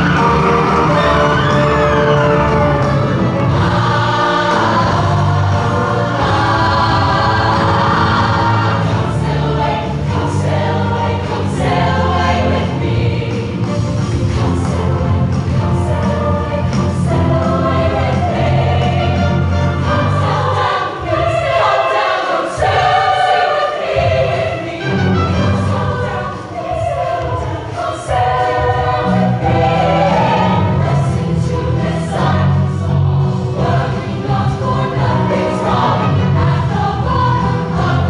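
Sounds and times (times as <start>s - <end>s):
live band playing: 0.0s - 4.0s
women's choir singing: 0.0s - 38.0s.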